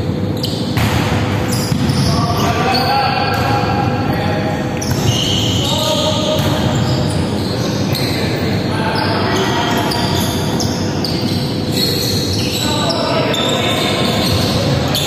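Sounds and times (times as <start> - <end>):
volleyball being struck: 0.7 - 1.9.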